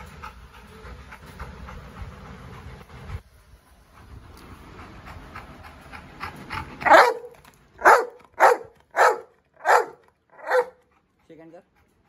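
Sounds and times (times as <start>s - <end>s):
dog barking: 6.8s - 10.8s.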